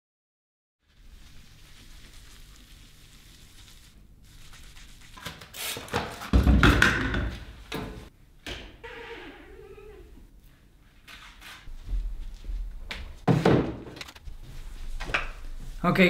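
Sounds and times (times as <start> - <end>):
cloth scrubbing tiles: 0.8 - 5.9.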